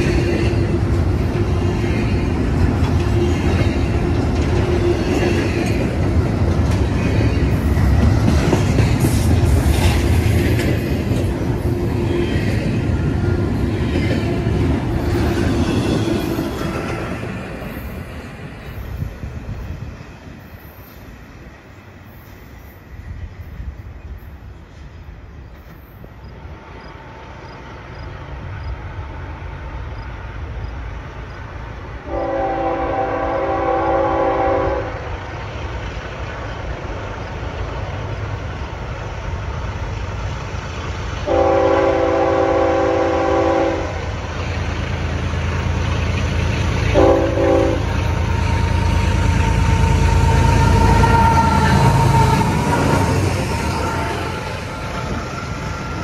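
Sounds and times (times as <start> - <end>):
diesel locomotive rumble: 0.0 - 20.6, 25.8 - 56.0
locomotive air horn blasts: 32.0 - 35.0, 41.2 - 44.0, 46.9 - 48.0.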